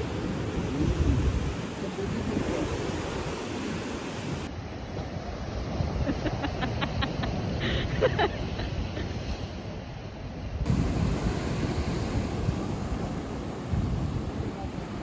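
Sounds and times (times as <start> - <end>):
wind buffeting microphone: 0.0 - 6.6, 10.5 - 15.0
ocean surf washing onto beach: 0.0 - 15.0.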